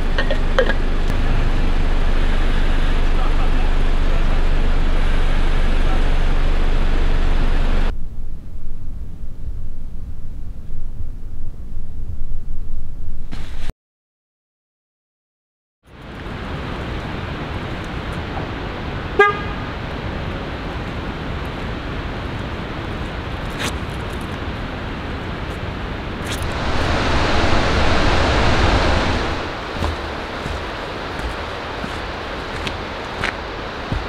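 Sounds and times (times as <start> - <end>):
steady rushing outdoor noise: 15.9 - 34.0.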